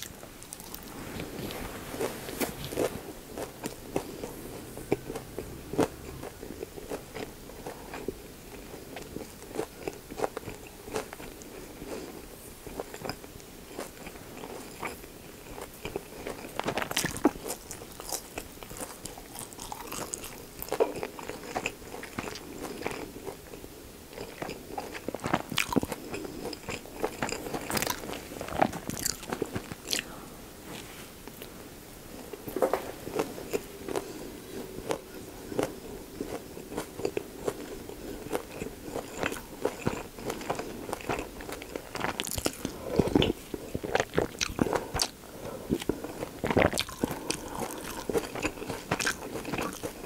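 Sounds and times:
close chewing crunchy wet clicks: 38.3s - 45.1s, 46.4s - 50.0s.

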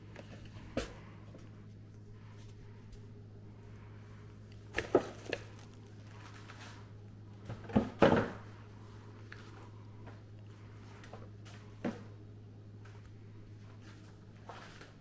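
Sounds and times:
steady low hum: 0.0s - 15.0s
handling knocks and rustles: 4.7s - 6.8s.

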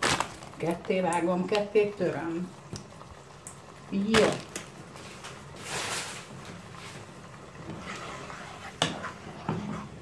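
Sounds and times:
spoon swishing in sauce: 7.6s - 10.0s.

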